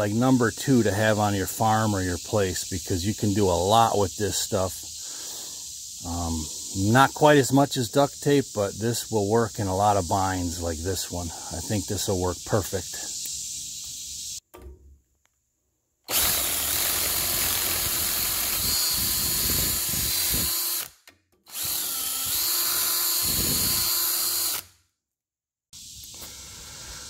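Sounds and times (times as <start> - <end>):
power drill boring through metal: 16.1 - 20.9, 21.5 - 24.7.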